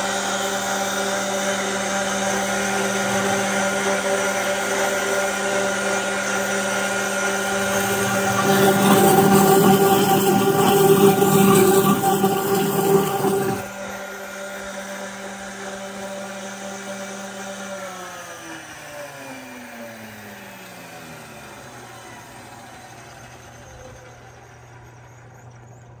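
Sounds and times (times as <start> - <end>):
blender motor whine: 0.0 - 25.9
water churning in blender jar: 7.0 - 13.7.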